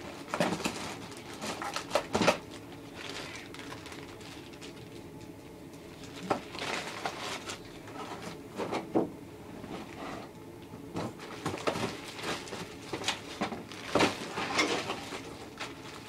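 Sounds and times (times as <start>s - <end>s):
plastic bags rustling and crinkling: 0.0s - 8.7s, 10.9s - 16.0s
sharp plastic crackles: 0.2s - 7.6s, 11.3s - 16.0s.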